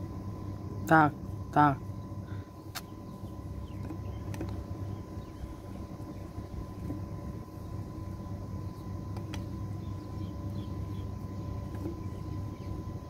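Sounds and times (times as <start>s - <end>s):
faint steady whine: 0.0s - 13.0s
low outdoor rumble: 0.0s - 13.0s.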